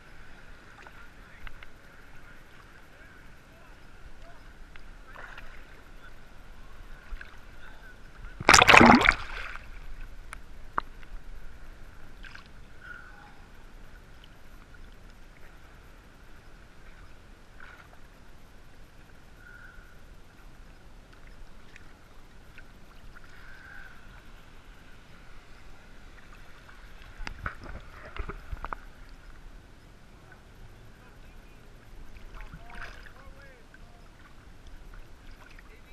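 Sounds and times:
water lapping and sloshing: 0:00.1 - 0:11.1, 0:31.8 - 0:35.9
loud water splash: 0:08.4 - 0:09.6.

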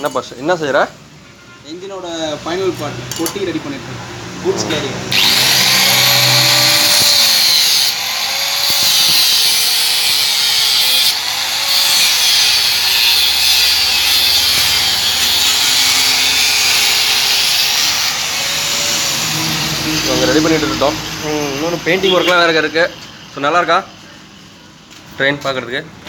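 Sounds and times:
angle grinder cutting steel: 0:04.6 - 0:23.6.

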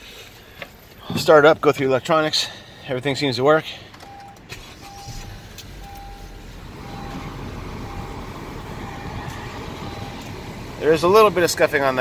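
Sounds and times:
car engine starting and idling: 0:03.0 - 0:12.0
dashboard warning chime: 0:04.0 - 0:10.3.

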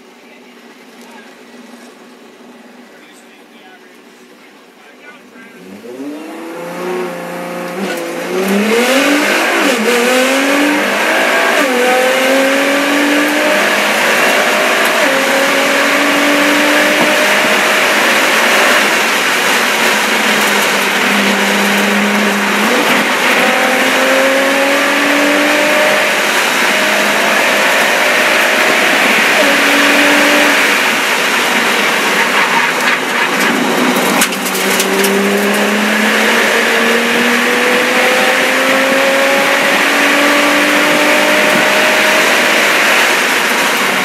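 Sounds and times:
race car accelerating hard: 0:05.4 - 0:44.0
wind and tyre noise: 0:05.6 - 0:44.0.

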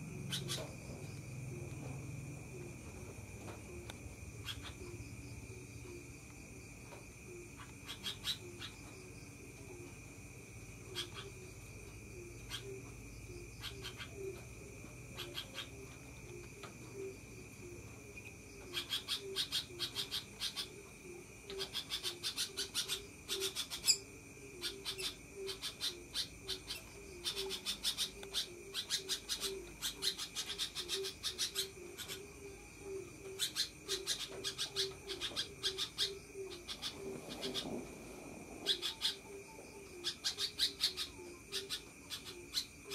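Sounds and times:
bulbul chattering: 0:00.0 - 0:06.0, 0:18.6 - 0:42.9.

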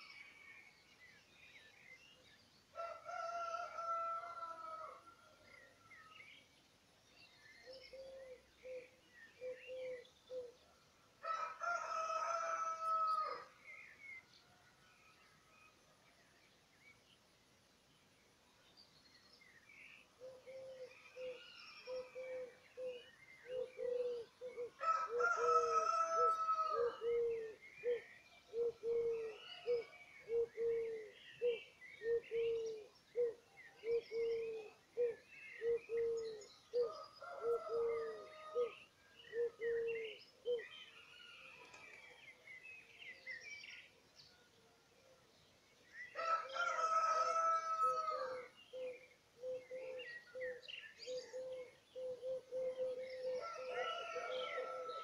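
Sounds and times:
birds chirping and warbling: 0:00.0 - 0:55.0
loud bird calls: 0:46.1 - 0:55.0.

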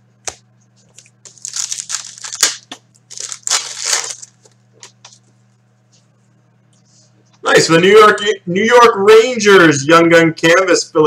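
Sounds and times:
wrapper tearing and crinkling: 0:01.0 - 0:04.6.

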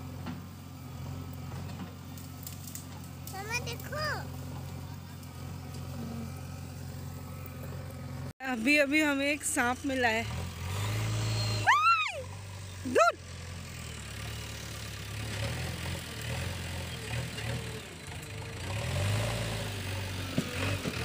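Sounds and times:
low engine hum: 0:00.0 - 0:21.0
high-pitched cries: 0:11.6 - 0:12.3.

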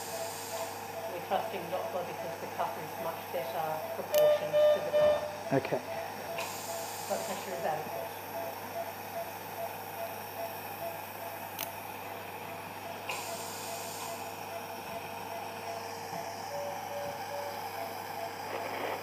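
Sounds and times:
electrical hum and hiss: 0:00.0 - 0:19.0
patient monitor beeping rapidly: 0:00.0 - 0:19.0.

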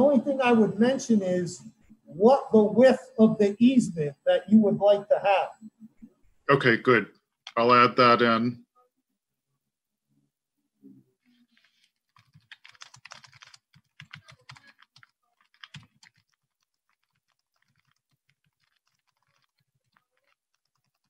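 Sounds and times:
typing on a computer keyboard: 0:11.5 - 0:21.0.

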